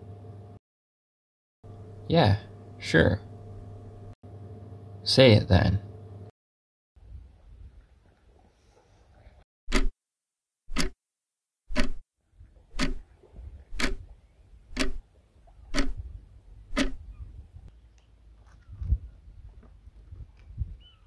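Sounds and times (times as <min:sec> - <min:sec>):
clock ticking: 0:11.7 - 0:12.0, 0:12.8 - 0:13.0, 0:13.8 - 0:14.0, 0:14.7 - 0:15.0, 0:15.7 - 0:16.0.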